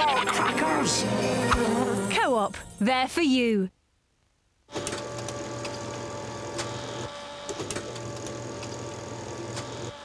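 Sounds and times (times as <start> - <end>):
machine whirring and humming: 4.7 - 10.0.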